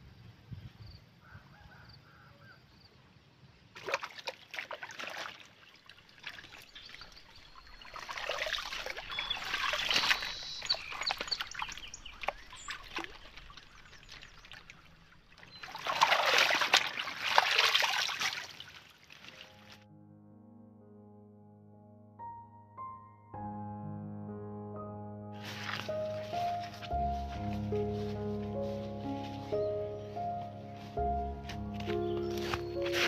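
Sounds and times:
water splashing and sloshing: 3.7 - 19.9, 25.4 - 29.7, 30.4 - 33.0.

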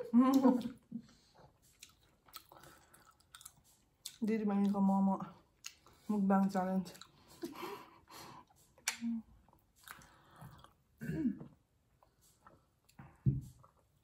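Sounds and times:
chewing and mouth sounds: 0.3 - 6.1, 6.8 - 7.5, 8.4 - 14.0
low throat sounds: 11.0 - 11.6.

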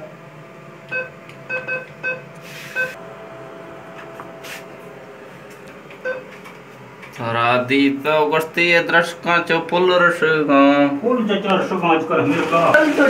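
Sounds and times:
faint machine hum: 0.0 - 13.0
keypad beeps: 0.9 - 3.0, 6.0 - 6.3.

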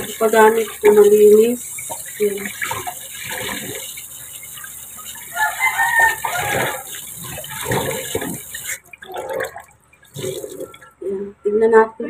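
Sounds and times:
water splashing by hand: 0.0 - 10.9
rooster crowing: 5.3 - 6.9.

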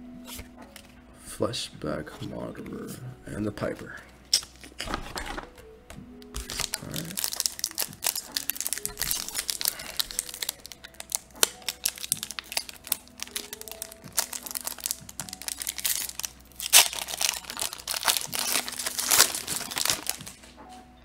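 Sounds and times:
foil wrapper crinkling: 6.2 - 20.5.

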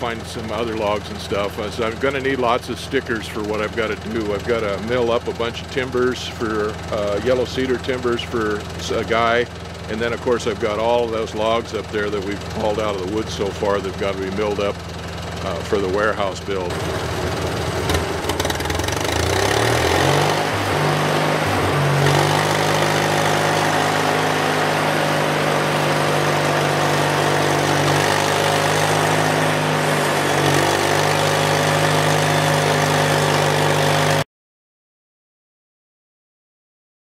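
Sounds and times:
band saw mill engine running: 0.0 - 34.2
saw cutting log: 16.7 - 34.2.

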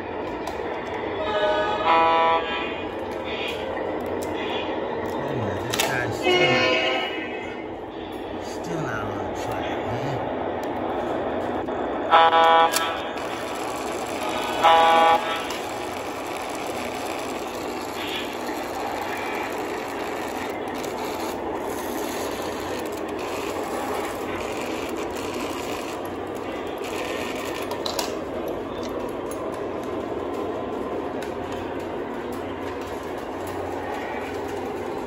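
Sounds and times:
model train rumbling on track: 0.0 - 35.0
model train horn toot: 1.2 - 2.8, 6.2 - 7.5, 12.1 - 16.0.

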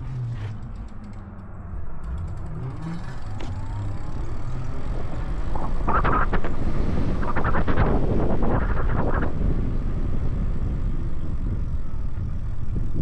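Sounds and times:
low road rumble: 0.0 - 13.0
wind noise on microphone: 3.7 - 13.0.

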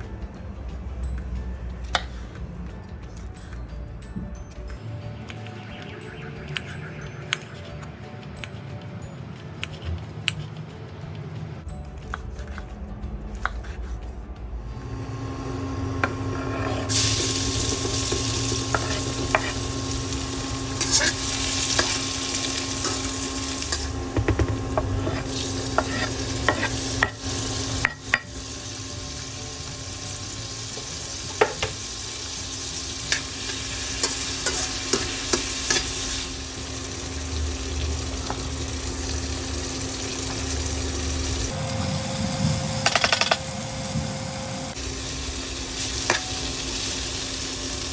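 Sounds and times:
cooktop hum: 14.6 - 47.9
vegetables sizzling in oil: 16.8 - 47.9.

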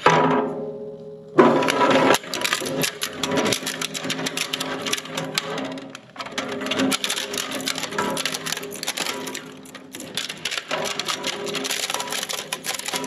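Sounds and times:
plastic cracking in shredder: 1.4 - 13.0.

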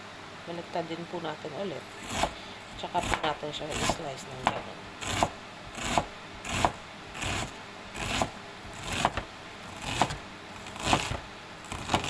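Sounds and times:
knife slicing through onion: 1.9 - 12.0.

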